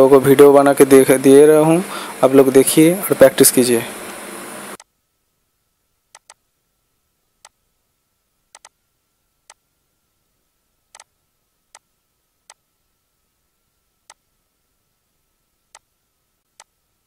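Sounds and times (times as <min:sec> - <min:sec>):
computer mouse clicks: 0:06.1 - 0:06.4, 0:08.5 - 0:08.8, 0:10.9 - 0:11.1.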